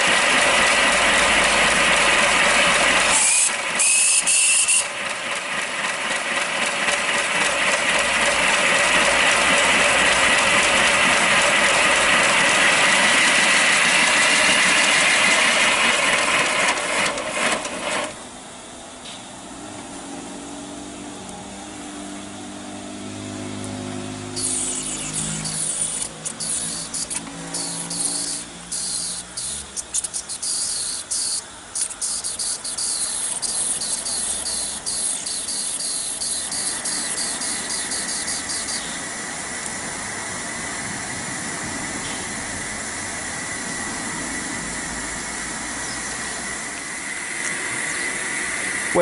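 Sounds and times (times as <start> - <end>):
steam hissing: 0.0 - 18.1, 24.3 - 49.0
faint whistling tones: 3.2 - 5.0, 24.4 - 39.1.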